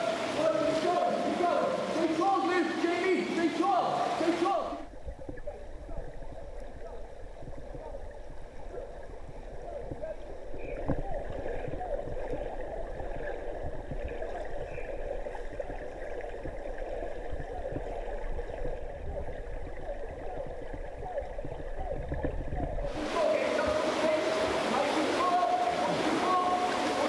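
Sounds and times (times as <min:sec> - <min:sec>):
underwater churning and bubbling: 0:04.8 - 0:23.0.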